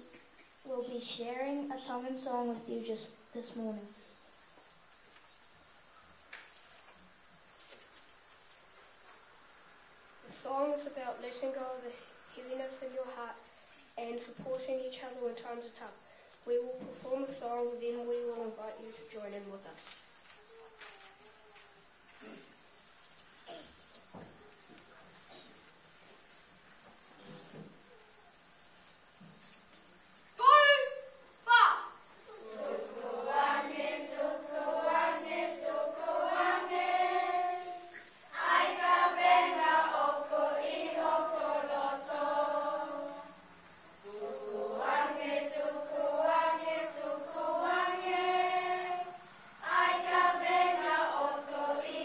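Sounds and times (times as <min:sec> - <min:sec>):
children singing together: 0:32.3 - 0:43.3, 0:44.1 - 0:52.0.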